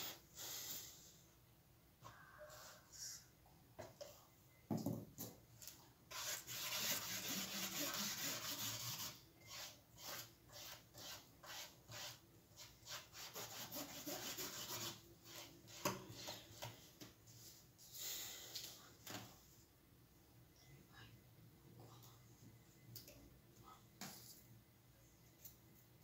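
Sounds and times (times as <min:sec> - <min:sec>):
paintbrush brushing on cardboard: 0:06.1 - 0:16.4.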